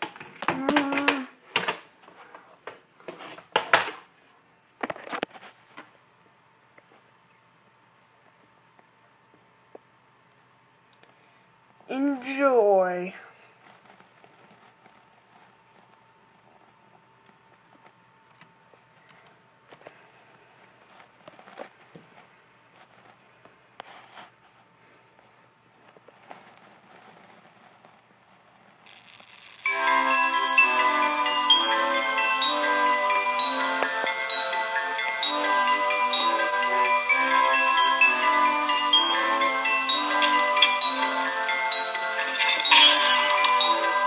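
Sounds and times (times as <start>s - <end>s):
faint steady high hum: 0.0s - 44.0s
faint clicks and rustles: 13.4s - 29.3s.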